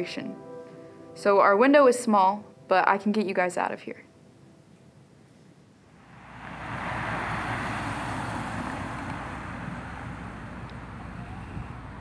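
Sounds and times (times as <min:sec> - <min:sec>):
low rumble: 0:05.9 - 0:12.0
vehicle rushing noise: 0:05.9 - 0:12.0.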